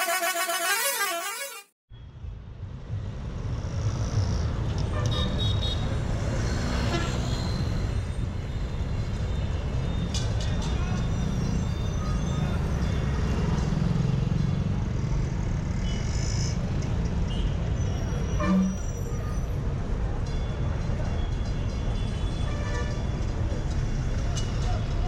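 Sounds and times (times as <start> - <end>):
low horn toot: 0.0 - 1.7, 18.4 - 18.8
vehicle engines rumbling: 2.1 - 25.0.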